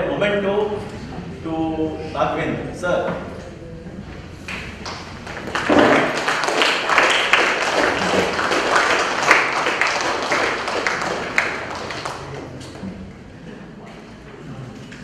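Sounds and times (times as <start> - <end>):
audience applauding: 4.6 - 12.6.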